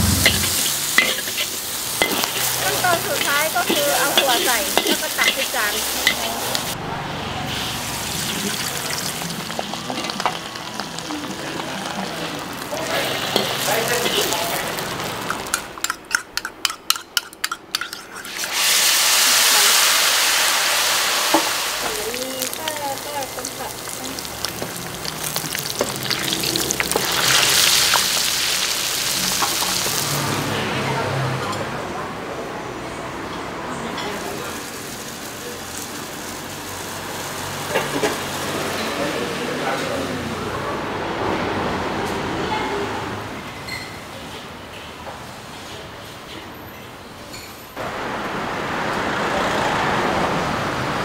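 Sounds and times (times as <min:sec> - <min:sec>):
food sizzling in hot oil: 0:00.0 - 0:06.8, 0:07.5 - 0:30.5, 0:34.1 - 0:39.0.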